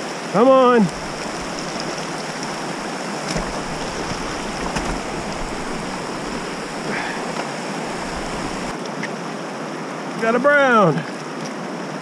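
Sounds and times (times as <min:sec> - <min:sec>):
river rushing over rocks: 0:00.0 - 0:10.2
wind rumble on microphone: 0:00.9 - 0:07.0, 0:07.8 - 0:08.7.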